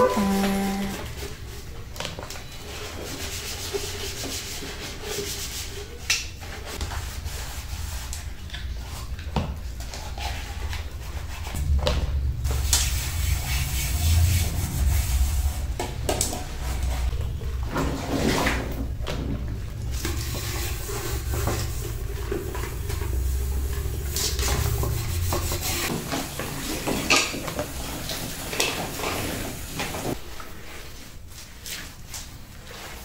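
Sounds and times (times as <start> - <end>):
pans being scrubbed: 0.0 - 1.6, 2.6 - 9.2, 9.8 - 11.6, 19.6 - 33.0.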